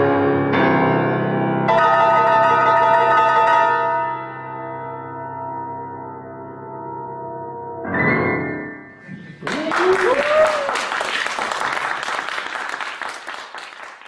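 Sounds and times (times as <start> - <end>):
audience applause: 9.2 - 14.0
whooping cheers: 9.4 - 11.5.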